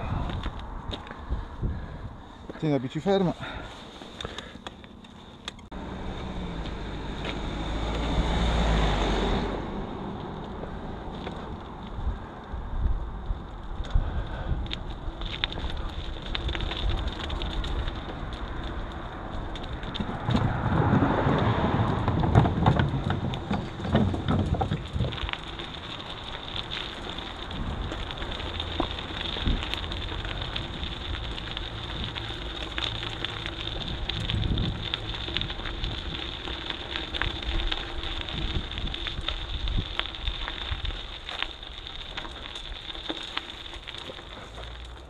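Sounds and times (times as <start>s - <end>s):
bicycle tyres crackling: 0.0s - 45.0s
small rattles and clicks: 14.6s - 20.7s, 21.3s - 45.0s.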